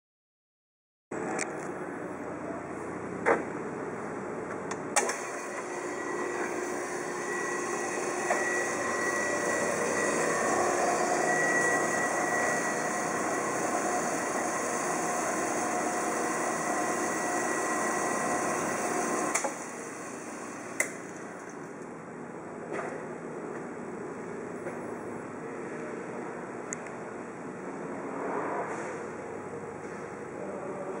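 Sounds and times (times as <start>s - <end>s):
band saw running: 5.0s - 21.5s.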